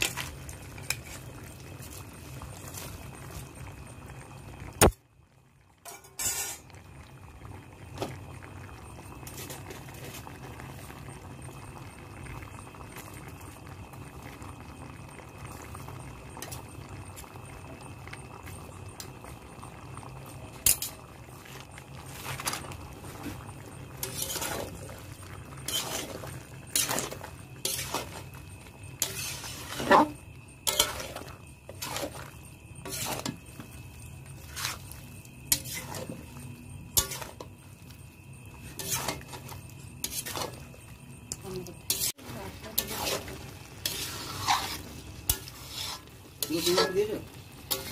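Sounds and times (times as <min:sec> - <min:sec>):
metal spatula scraping a wok: 0:05.9 - 0:06.7, 0:24.0 - 0:24.8, 0:25.6 - 0:28.2, 0:29.0 - 0:32.2, 0:32.8 - 0:33.4, 0:34.4 - 0:36.2, 0:36.9 - 0:37.5, 0:38.7 - 0:40.7, 0:41.9 - 0:47.9.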